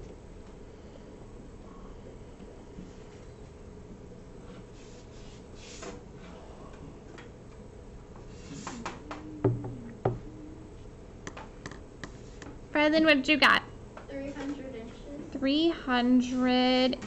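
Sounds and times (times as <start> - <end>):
sharp knocks: 8.8 - 10.3.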